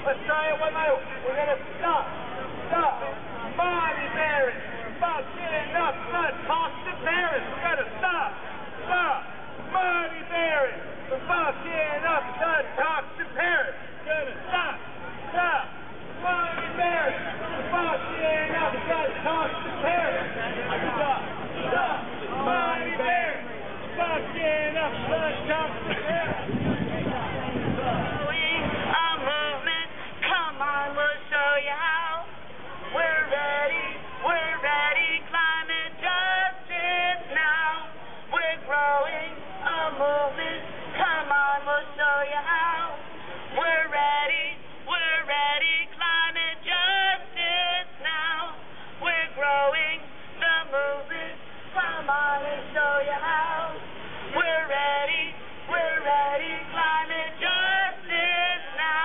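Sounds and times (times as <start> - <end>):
crowd singing together: 15.4 - 59.0.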